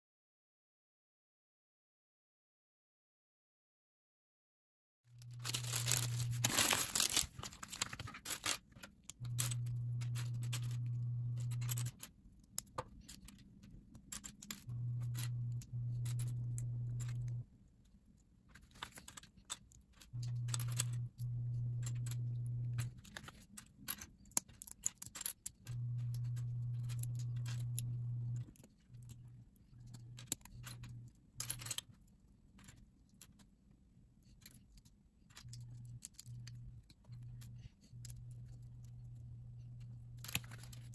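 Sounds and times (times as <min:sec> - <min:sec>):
plastic bricks clattering and clicking: 0:05.2 - 0:17.4
steady low hum: 0:09.2 - 0:12.0, 0:14.6 - 0:17.4, 0:20.2 - 0:23.1, 0:25.7 - 0:31.7, 0:35.4 - 0:40.9.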